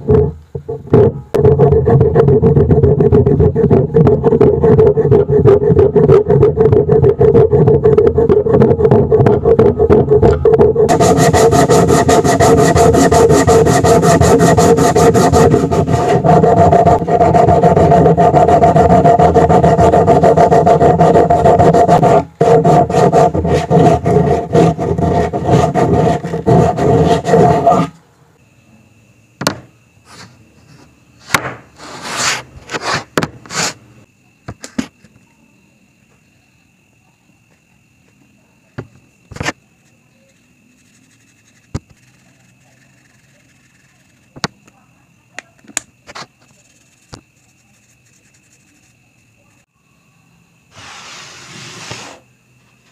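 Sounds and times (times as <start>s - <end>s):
sandpaper scraping wood: 1.6s - 10.1s, 10.7s - 28.0s, 31.8s - 33.8s, 40.2s - 44.5s, 46.1s - 49.0s, 50.7s - 52.2s
wood knocks on bench: 29.4s - 29.7s, 31.3s - 31.6s.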